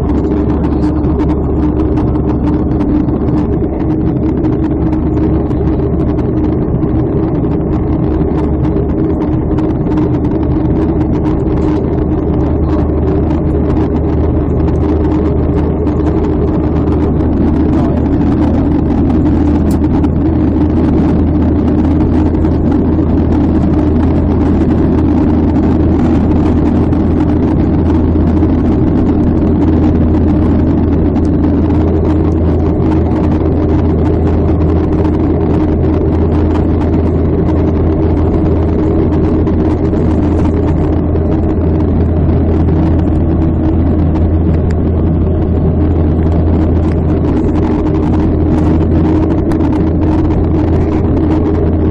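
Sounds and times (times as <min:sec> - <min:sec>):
jet engines droning in cabin: 0:00.0 - 0:51.9
rushing air: 0:00.0 - 0:51.9.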